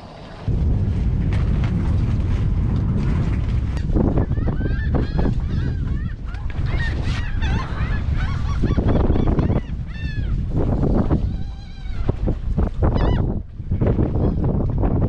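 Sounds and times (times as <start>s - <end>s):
wind buffeting microphone: 0.0s - 15.0s
flock of birds honking: 4.3s - 10.4s, 12.9s - 13.3s.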